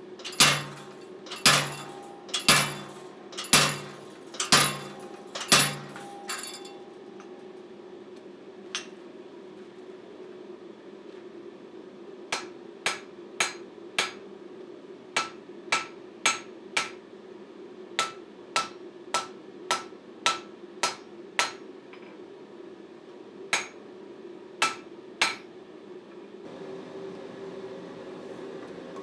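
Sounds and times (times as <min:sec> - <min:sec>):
steady low hum: 0:00.0 - 0:28.6
hammer striking steel on anvil: 0:00.2 - 0:07.5, 0:12.3 - 0:14.2, 0:15.2 - 0:17.0, 0:18.0 - 0:22.1, 0:23.5 - 0:23.8, 0:24.6 - 0:25.5.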